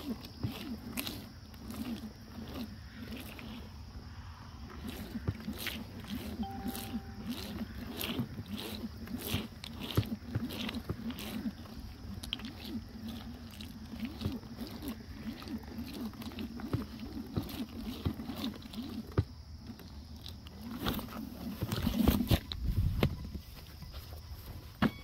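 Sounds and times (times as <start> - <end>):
tyres crackling through wet grass: 0.0 - 3.8.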